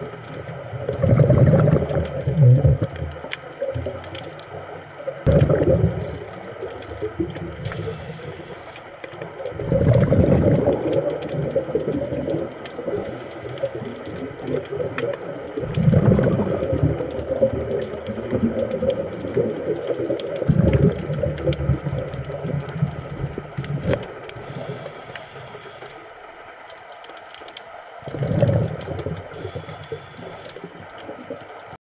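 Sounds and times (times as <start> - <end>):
exhaled bubbles rumbling: 0.0 - 25.8, 27.7 - 31.8
regulator inhalation hiss: 6.9 - 9.1, 12.9 - 14.3, 24.4 - 26.2, 29.3 - 30.8.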